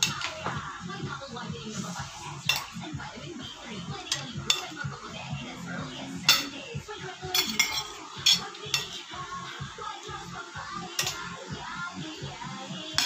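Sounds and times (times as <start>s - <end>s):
cutlery clinking on ceramic plates: 2.5s - 2.7s, 4.1s - 4.8s, 7.3s - 9.0s, 11.0s - 11.3s.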